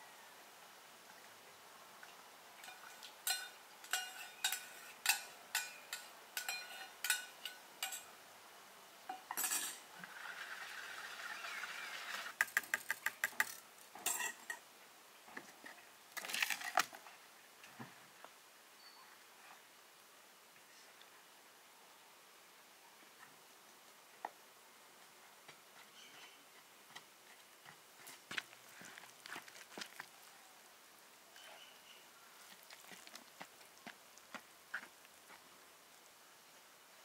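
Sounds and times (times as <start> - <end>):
metal utensil clinking on plastic bowl: 2.6 - 8.1, 9.1 - 9.8.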